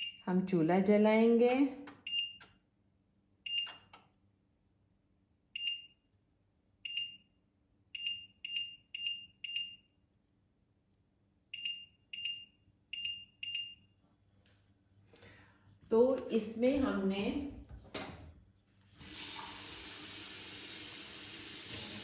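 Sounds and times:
cooktop short electronic beeps: 0.0 - 0.2.

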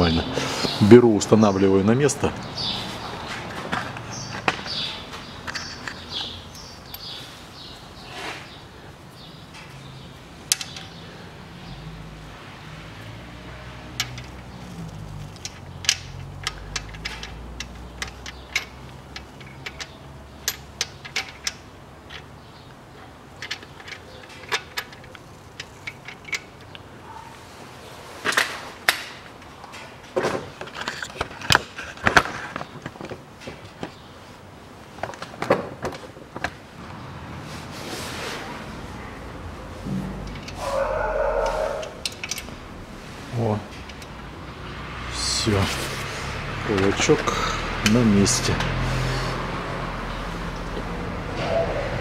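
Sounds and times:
metallic clicks of hand tools: 13.9 - 22.3, 41.4 - 42.5.

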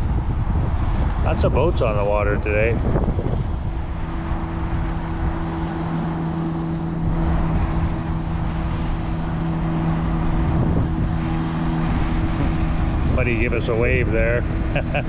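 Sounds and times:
boat engine humming: 0.0 - 15.0
wind rumbling on microphone: 0.0 - 15.0.

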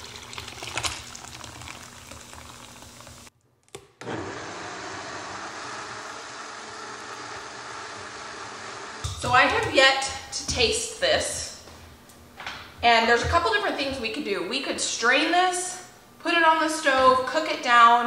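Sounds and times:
liquid trickling through strainer: 0.0 - 3.3
blender running: 4.0 - 9.7.

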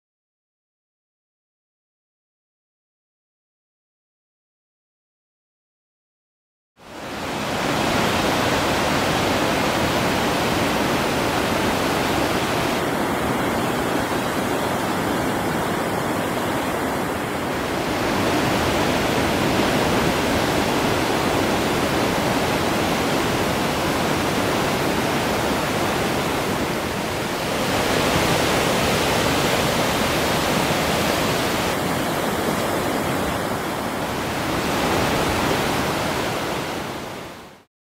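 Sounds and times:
sea surf breaking on rocks: 7.0 - 37.3.

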